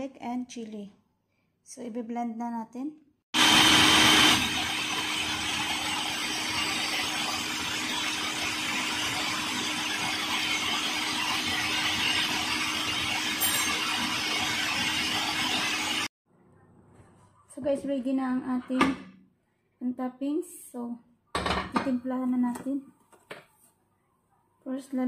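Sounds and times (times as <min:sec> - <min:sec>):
food processor chopping: 0:03.4 - 0:16.1.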